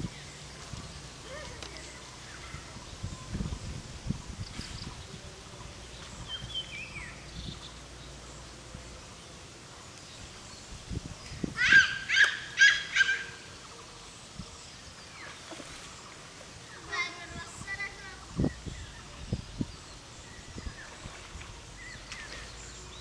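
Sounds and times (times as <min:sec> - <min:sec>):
animal high-pitched calls: 0:11.6 - 0:13.4.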